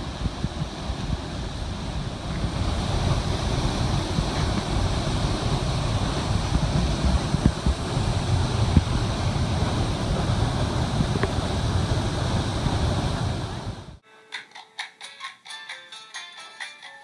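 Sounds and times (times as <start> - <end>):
waterfall roaring: 0.0 - 14.0
wind buffeting microphone: 0.0 - 14.0.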